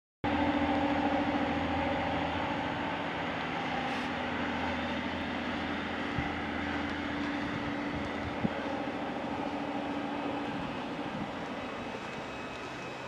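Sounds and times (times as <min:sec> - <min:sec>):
diesel train engine idling: 0:00.2 - 0:13.0.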